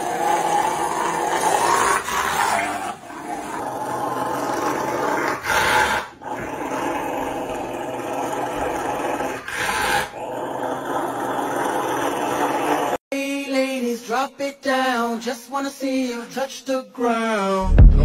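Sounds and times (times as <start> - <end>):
dog growling and grumbling: 0.0 - 13.0.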